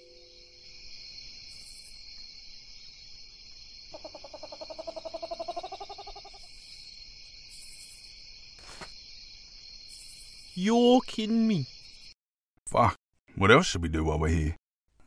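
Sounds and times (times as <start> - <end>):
night insects chorus: 0.0 - 12.2
kookaburra calling: 4.0 - 6.4.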